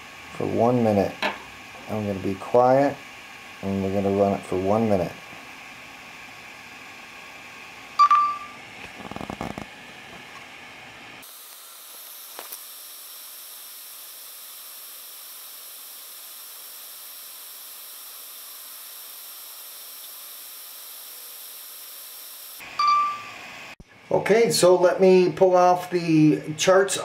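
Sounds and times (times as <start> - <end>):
room hiss: 0.0 - 9.9, 10.6 - 27.0
short electronic beep: 8.0 - 8.6, 22.8 - 23.4.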